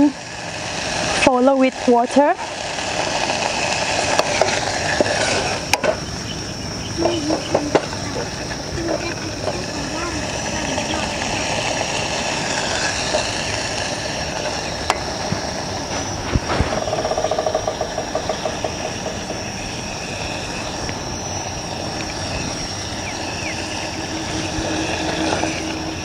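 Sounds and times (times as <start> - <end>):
gas stove burning: 0.0 - 26.0
rapid rattle: 8.8 - 26.0.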